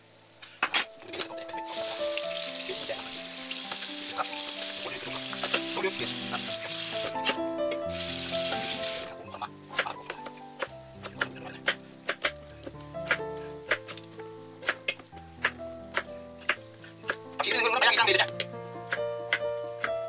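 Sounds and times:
background music: 0.7s - 20.0s
tap water running into metal sink: 1.6s - 7.2s.

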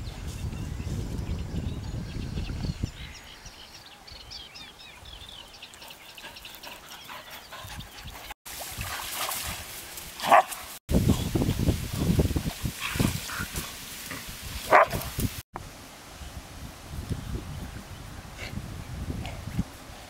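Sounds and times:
dog barking: 10.2s - 10.6s, 14.7s - 15.0s.

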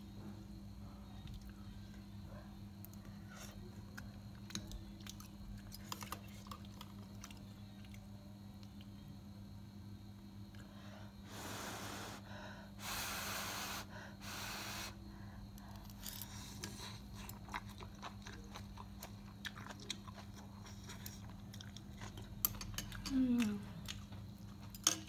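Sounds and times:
steady low hum: 0.0s - 25.0s
wet chewing: 4.0s - 8.0s, 16.6s - 22.6s.

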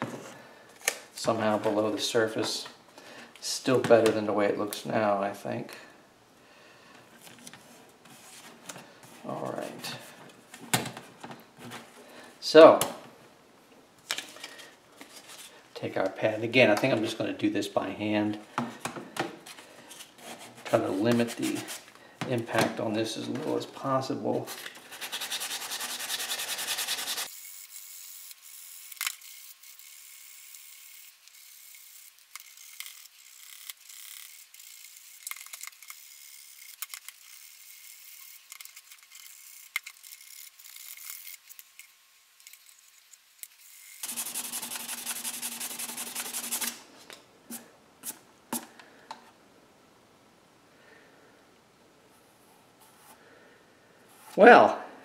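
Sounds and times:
sanding plastic by hand: 24.5s - 27.4s, 43.9s - 46.8s.

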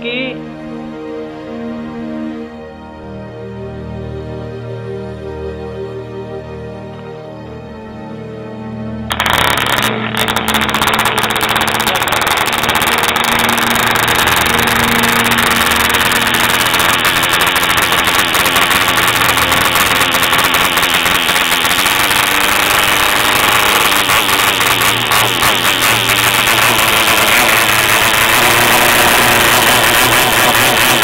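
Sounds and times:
model airplane engine running: 9.1s - 31.0s.

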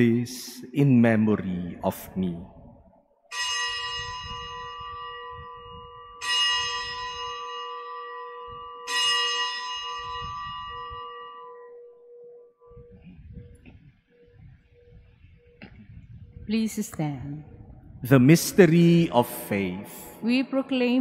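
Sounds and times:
bell strokes ringing: 3.3s - 12.9s.

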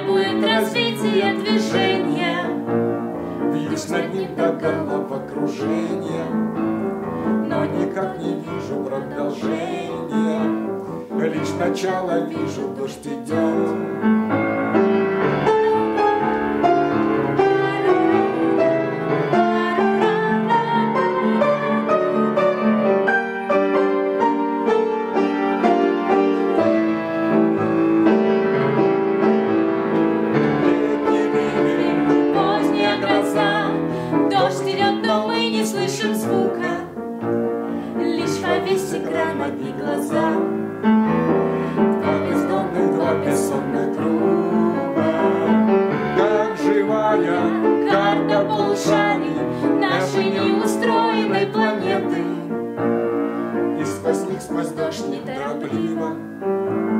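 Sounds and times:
woman singing: 0.0s - 2.7s, 3.6s - 6.4s, 7.4s - 13.7s, 15.5s - 16.5s, 17.2s - 22.8s, 30.8s - 37.0s, 37.7s - 40.6s, 42.0s - 52.5s, 53.8s - 56.3s
piano playing: 0.0s - 56.9s.

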